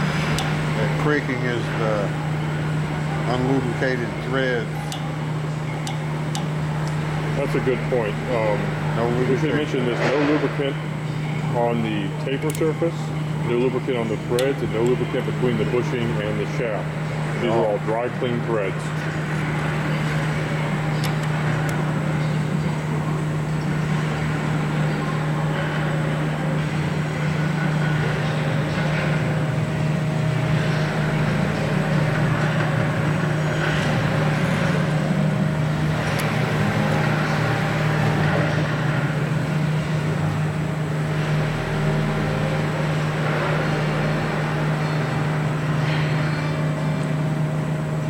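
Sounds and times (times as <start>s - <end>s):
low machine hum: 0.0s - 48.0s.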